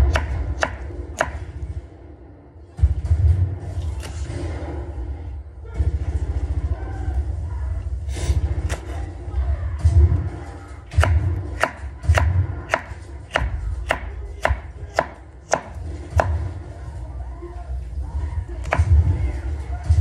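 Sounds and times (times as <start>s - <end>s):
knife chopping on cutting board: 0.1s - 1.4s, 10.9s - 16.4s.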